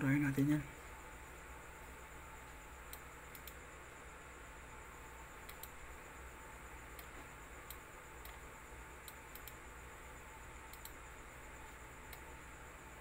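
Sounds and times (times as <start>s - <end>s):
faint hum and hiss: 0.0s - 13.0s
computer mouse clicking: 2.9s - 3.6s, 5.4s - 5.8s, 6.9s - 8.4s, 9.0s - 9.6s, 10.7s - 11.0s, 12.1s - 12.3s.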